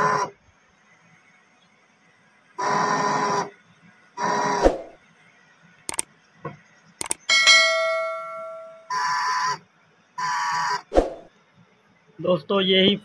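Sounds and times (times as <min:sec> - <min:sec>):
small water pump buzzing: 0:00.0 - 0:00.4, 0:02.6 - 0:05.0
mouse clicks: 0:05.9 - 0:06.1, 0:07.0 - 0:07.2
bell ding: 0:07.3 - 0:08.9.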